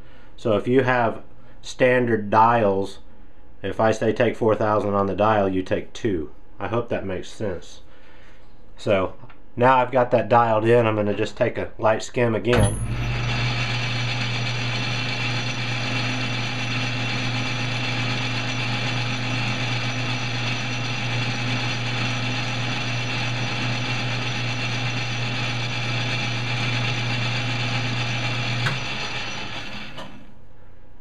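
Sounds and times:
lathe switch click: 0:12.5 - 0:13.1
metal lathe motor hum: 0:12.6 - 0:30.3.

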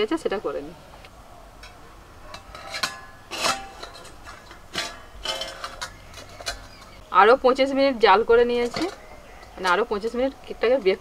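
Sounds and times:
metal lid clinking and scraping: 0:01.6 - 0:07.0, 0:08.3 - 0:10.1.

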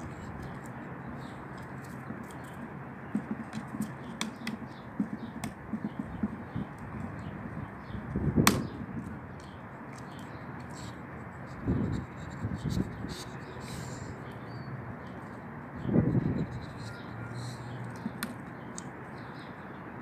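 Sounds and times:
dog gnawing wood: 0:00.0 - 0:06.5.

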